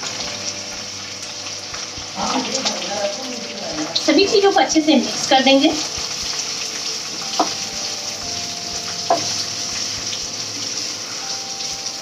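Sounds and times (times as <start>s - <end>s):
onions sizzling in hot oil: 0.0s - 12.0s
spatula knocking against pan: 7.3s - 7.6s, 9.0s - 9.4s.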